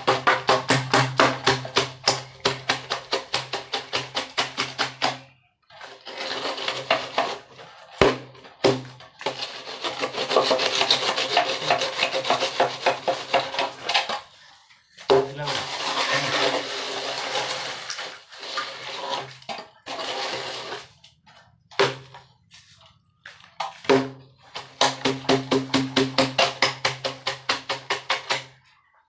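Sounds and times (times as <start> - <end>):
screed board scraping wet cement: 0.0 - 25.4, 26.1 - 28.6.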